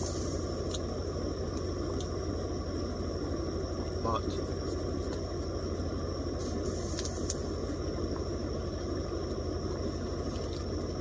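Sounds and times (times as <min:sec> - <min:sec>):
low engine drone: 0:00.0 - 0:11.0
high crackles: 0:06.4 - 0:07.8.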